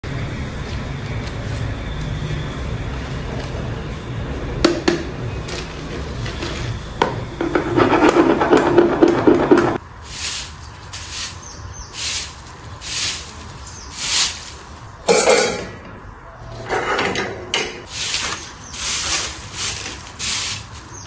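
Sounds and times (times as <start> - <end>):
fuller scraping sound: 7.4 - 15.6, 16.4 - 21.0
broom sweeping earth: 9.8 - 15.0, 17.9 - 21.0.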